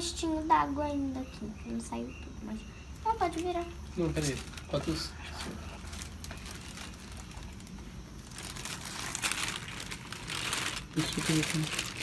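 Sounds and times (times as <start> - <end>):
plastic garbage bag crinkling: 3.1 - 12.0.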